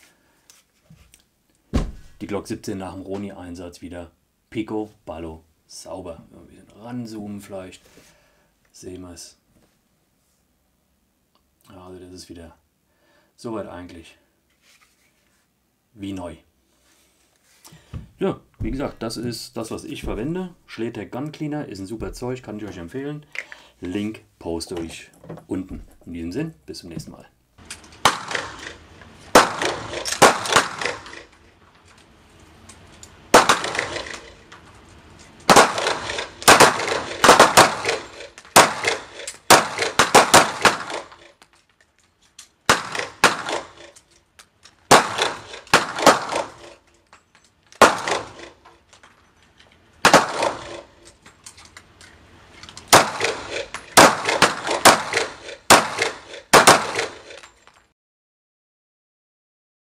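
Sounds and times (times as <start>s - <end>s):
pistol shots echoing indoors: 28.0s - 31.2s, 33.4s - 34.4s, 35.5s - 41.2s, 42.7s - 43.8s, 44.9s - 46.6s, 47.8s - 48.4s, 50.1s - 50.8s, 52.9s - 57.3s.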